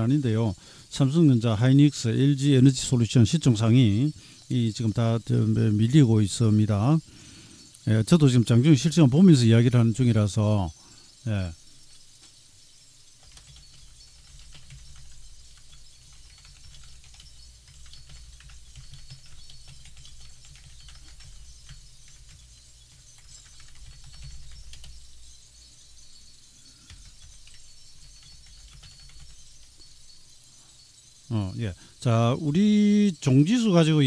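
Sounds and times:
computer keyboard typing: 13.2s - 25.4s, 26.8s - 29.9s.

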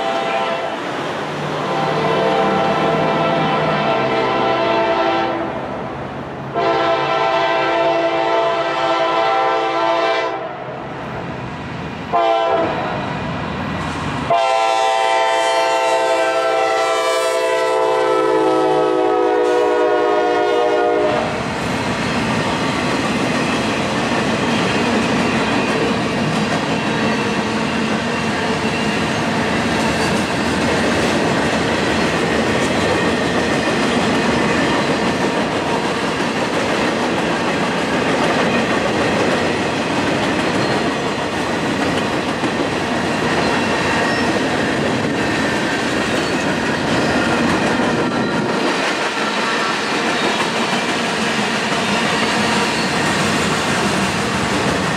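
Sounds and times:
train air horn blasts: 0.0s - 0.8s, 1.6s - 5.5s, 6.5s - 10.6s, 12.1s - 13.0s, 14.3s - 21.5s.

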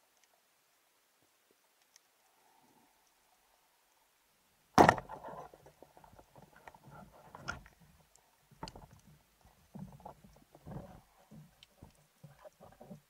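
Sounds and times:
speargun firing crack: 4.8s - 5.2s.

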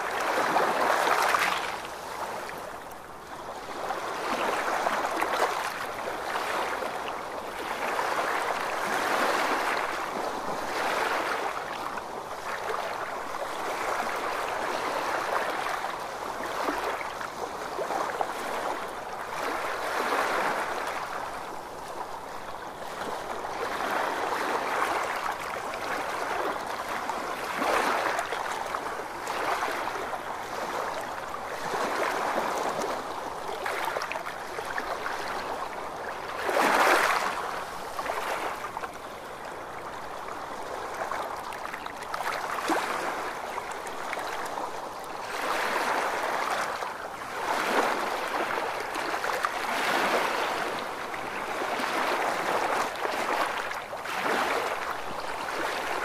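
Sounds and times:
waves washing on sand: 0.0s - 2.9s, 3.5s - 56.0s.

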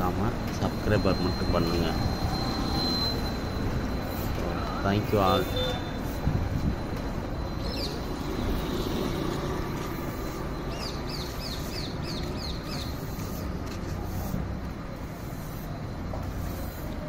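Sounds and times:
street background noise: 0.0s - 17.0s
small bird chirping: 10.2s - 13.4s.

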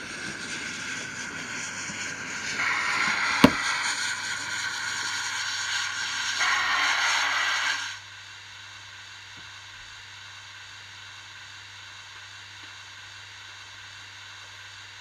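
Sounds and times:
model train motor whirring: 0.0s - 8.0s.

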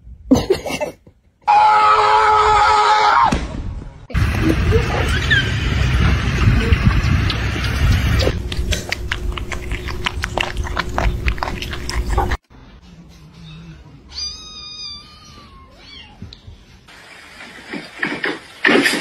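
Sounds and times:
kittens lapping milk: 6.4s - 12.4s
kitten meowing: 14.1s - 16.2s.

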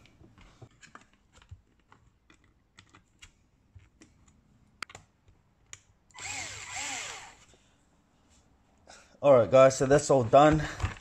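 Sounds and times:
cordless drill whining: 6.1s - 7.5s.

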